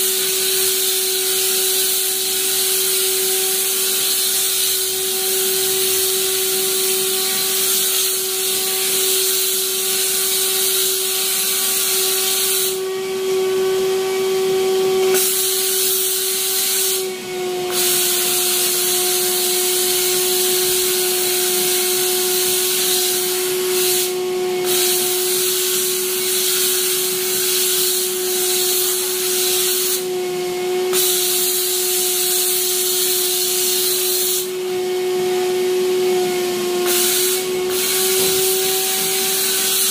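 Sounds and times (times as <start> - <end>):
hose nozzle hissing: 0.0 - 12.8, 15.1 - 17.1, 17.7 - 30.1, 30.9 - 34.6, 36.8 - 39.9
machine motor whine: 11.8 - 33.8, 34.4 - 39.9.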